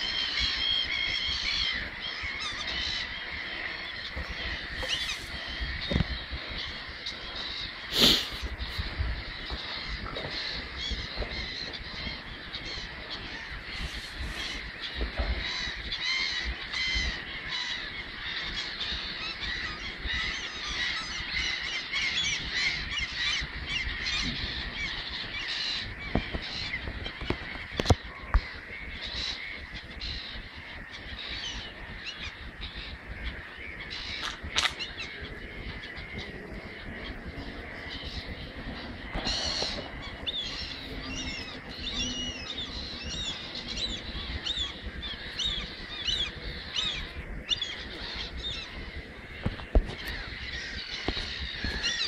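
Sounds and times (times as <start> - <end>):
gulls calling: 0.0 - 52.0
sharp clicks: 34.2 - 34.8.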